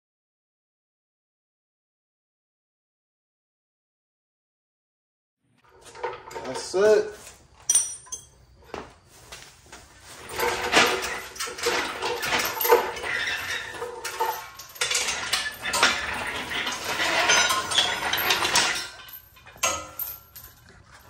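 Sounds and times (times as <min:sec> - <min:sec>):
steel chains clinking and rattling: 0:05.6 - 0:08.8, 0:10.0 - 0:21.0.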